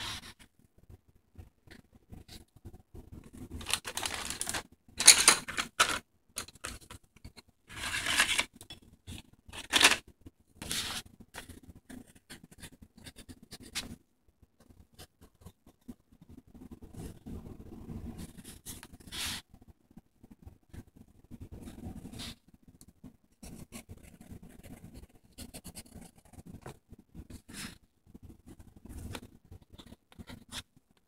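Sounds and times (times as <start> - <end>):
paper rustling: 3.6 - 7.0, 7.7 - 8.5, 9.6 - 10.0.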